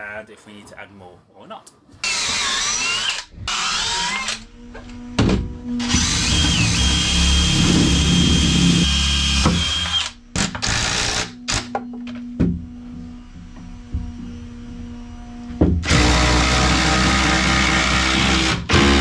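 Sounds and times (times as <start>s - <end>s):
power drill whining: 2.0s - 5.0s, 5.8s - 11.7s, 15.8s - 19.0s.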